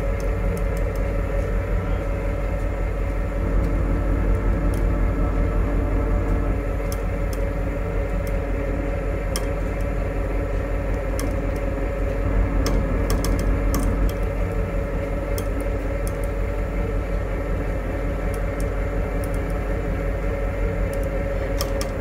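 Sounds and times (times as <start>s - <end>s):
faint clicks and ticks: 0.0s - 1.6s, 6.2s - 16.6s, 18.1s - 22.0s
engine idling: 0.0s - 22.0s.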